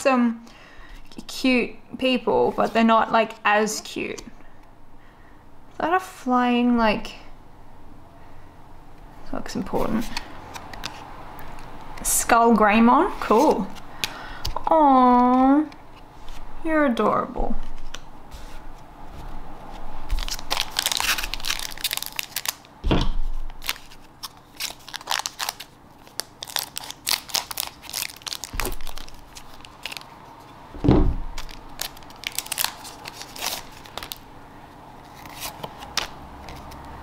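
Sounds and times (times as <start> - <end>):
cards sliding and shuffling: 9.7 - 12.0, 15.3 - 16.5, 17.6 - 21.6, 35.0 - 37.0
foil pack crinkling: 20.0 - 22.7, 23.4 - 30.2, 31.2 - 34.3
loud knocks: 30.8 - 31.3.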